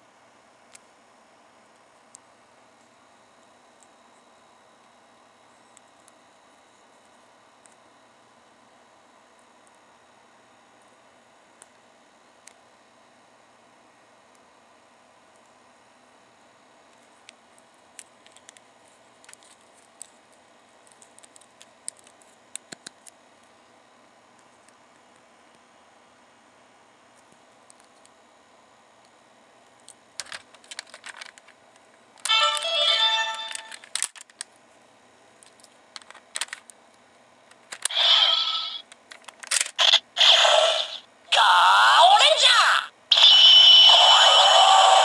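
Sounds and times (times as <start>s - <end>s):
plastic clicks: 30.2s - 31.6s, 33.5s - 34.5s, 35.4s - 36.8s, 37.5s - 37.9s, 38.8s - 39.9s
toy electronic jingle: 32.3s - 33.6s
electronic sound effects: 43.1s - 45.0s.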